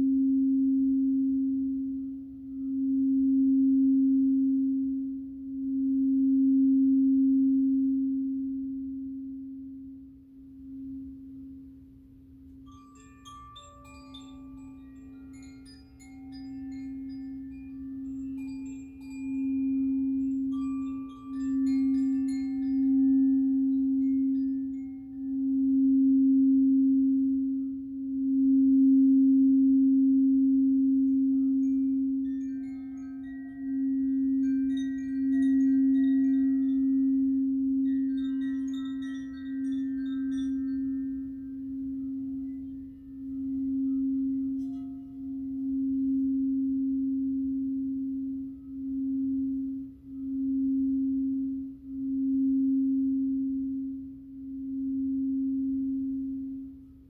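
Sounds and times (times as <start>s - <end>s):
singing bowl low note: 0.0s - 57.0s
high chime notes: 12.6s - 25.4s.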